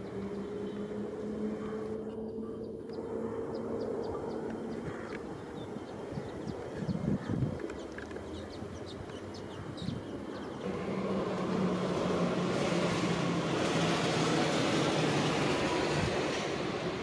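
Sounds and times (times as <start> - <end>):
birds chirping: 0.0 - 10.7
airliner engine rumble: 0.0 - 17.0.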